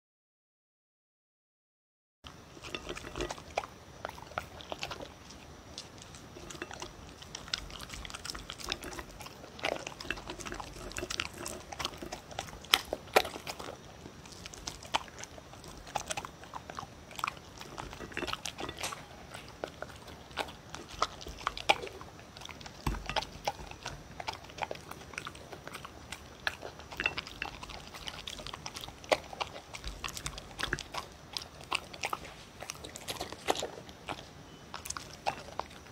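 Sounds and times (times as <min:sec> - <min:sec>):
dog crunching kibble: 0:02.3 - 0:35.9.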